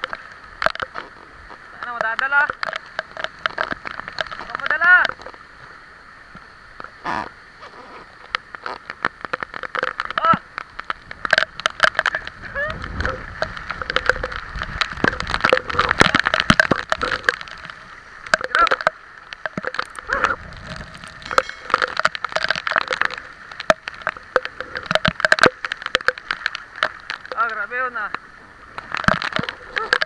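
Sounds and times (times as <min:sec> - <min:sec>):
floodwater rushing: 0:00.0 - 0:30.0
heavy rain pouring: 0:00.0 - 0:30.0
raindrops hitting camera: 0:00.0 - 0:30.0
wind rushing: 0:20.0 - 0:22.0.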